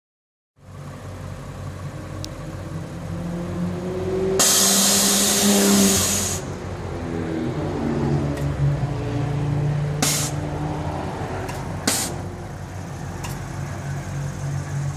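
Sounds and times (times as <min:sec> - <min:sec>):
air suspension hiss: 0:04.4 - 0:06.6, 0:10.0 - 0:10.4.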